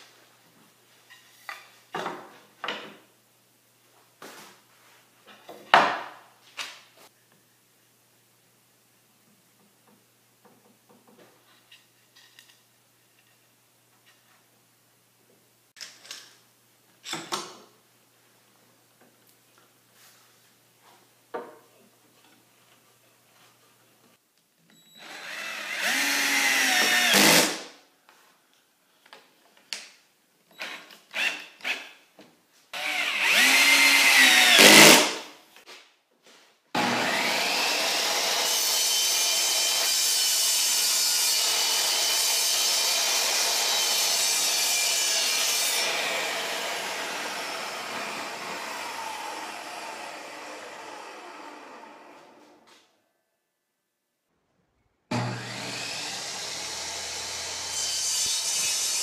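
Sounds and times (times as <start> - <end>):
power drill running: 25.0 - 27.5, 32.8 - 35.0, 45.8 - 52.4
table saw running: 36.8 - 52.5, 55.1 - 59.0.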